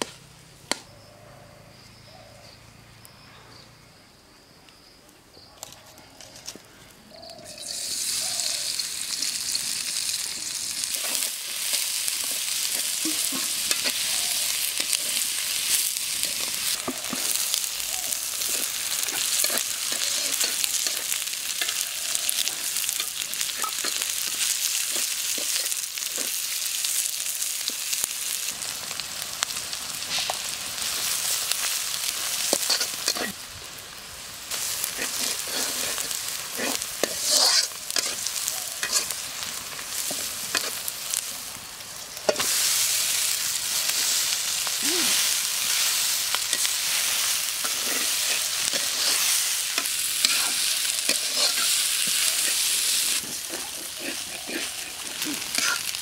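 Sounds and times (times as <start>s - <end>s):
onions sizzling in hot oil: 0.0s - 0.4s, 7.1s - 56.0s
metal spatula scraping a pan: 34.5s - 39.2s, 45.6s - 56.0s.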